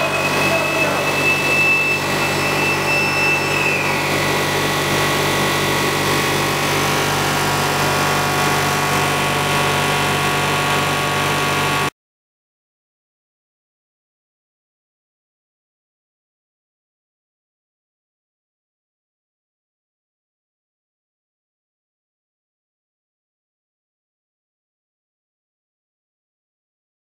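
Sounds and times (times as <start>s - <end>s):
machine whining tones: 0.0s - 11.9s
machinery drone: 0.0s - 11.9s.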